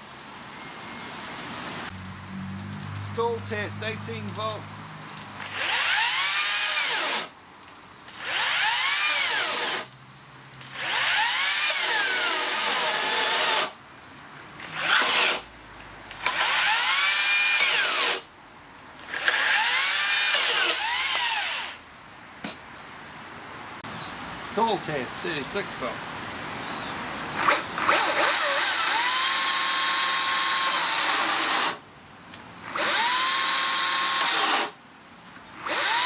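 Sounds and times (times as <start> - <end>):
chainsaw cutting timber: 5.4 - 7.3, 8.1 - 9.9, 10.8 - 13.8, 14.8 - 15.4, 16.2 - 18.2, 19.1 - 21.8, 27.4 - 31.8, 32.7 - 34.8, 35.6 - 36.0.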